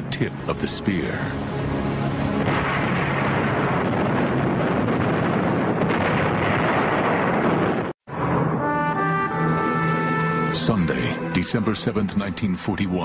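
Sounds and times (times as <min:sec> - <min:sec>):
dense rumble of explosions: 0:02.0 - 0:08.8.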